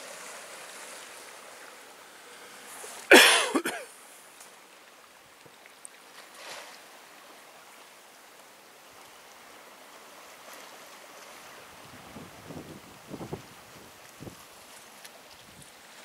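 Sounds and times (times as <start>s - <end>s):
light wind: 0.0s - 16.0s
wind buffeting microphone: 11.8s - 14.4s.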